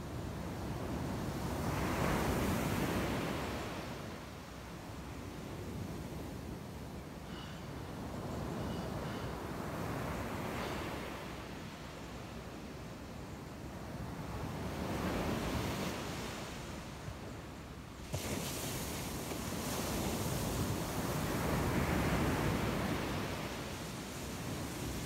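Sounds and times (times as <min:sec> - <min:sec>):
surf breaking on beach: 0:18.0 - 0:23.5.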